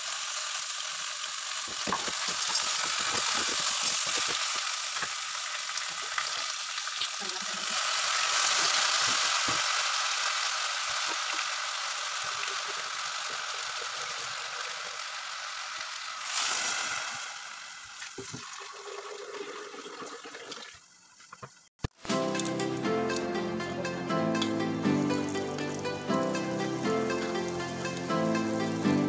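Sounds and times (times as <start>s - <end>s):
pasta sizzling in a pot: 0.0s - 22.8s, 24.4s - 29.0s
water pouring from a jug: 17.9s - 21.0s
music: 22.0s - 29.0s.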